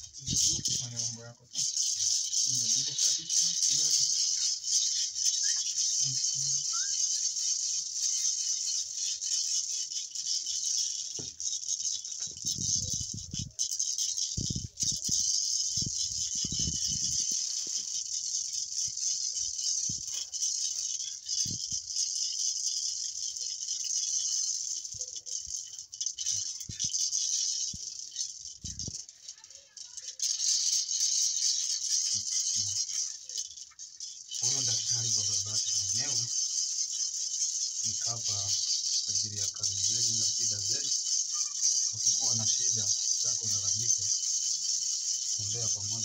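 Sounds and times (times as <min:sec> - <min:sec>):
gourd rattle shaking: 0:00.0 - 0:46.0.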